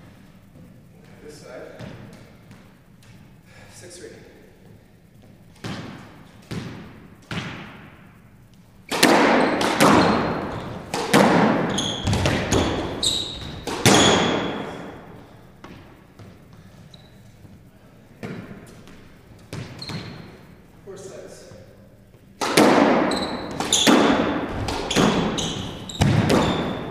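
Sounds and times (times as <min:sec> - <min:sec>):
racket striking squash ball: 0:05.5 - 0:08.2, 0:08.8 - 0:16.6, 0:18.2 - 0:20.6, 0:22.4 - 0:26.9
ball smacking off walls: 0:08.9 - 0:14.6, 0:22.4 - 0:26.9
ball thumps: 0:08.9 - 0:14.6, 0:22.4 - 0:26.9
shoes squeaking on wooden floor: 0:09.4 - 0:14.8, 0:15.6 - 0:17.7, 0:18.6 - 0:20.4, 0:23.1 - 0:26.9.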